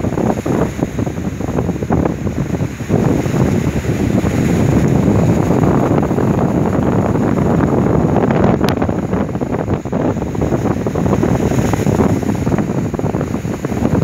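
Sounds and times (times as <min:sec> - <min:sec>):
waves breaking against ship: 0:00.0 - 0:14.0
wind buffeting microphone: 0:00.0 - 0:14.0.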